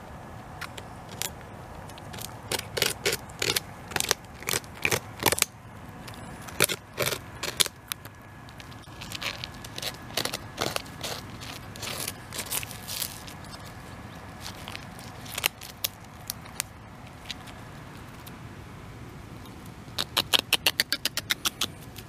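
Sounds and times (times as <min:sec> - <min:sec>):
beaver gnawing wood: 0:00.4 - 0:18.4, 0:19.4 - 0:22.0.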